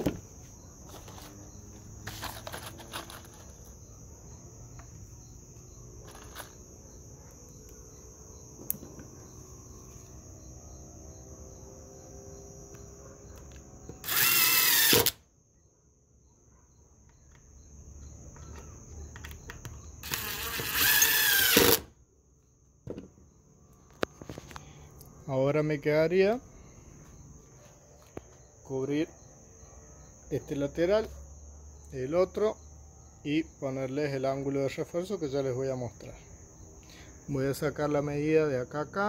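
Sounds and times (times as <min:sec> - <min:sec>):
crickets chirping: 0:00.0 - 0:39.0
cordless drill boring into wood: 0:14.0 - 0:15.2, 0:20.0 - 0:21.9.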